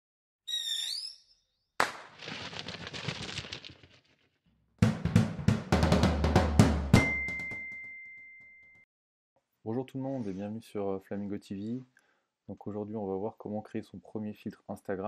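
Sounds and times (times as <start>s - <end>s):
drum roll: 4.8s - 7.6s.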